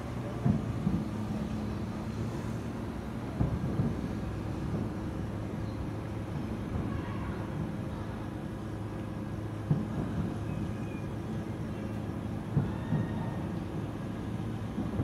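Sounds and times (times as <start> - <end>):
distant firework bursts: 0.0 - 15.0.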